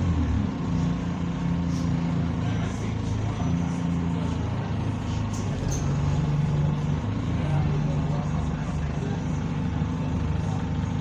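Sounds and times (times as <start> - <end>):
bus diesel engine running: 0.0 - 11.0.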